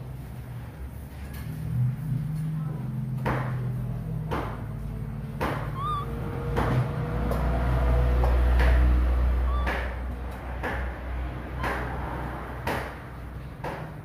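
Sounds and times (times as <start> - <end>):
baby monkey squeaking: 5.4 - 6.6, 9.4 - 10.0.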